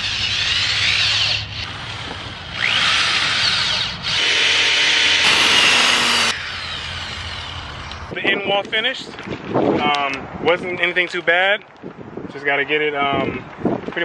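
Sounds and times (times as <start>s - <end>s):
electric drill driving screws: 0.0s - 8.1s.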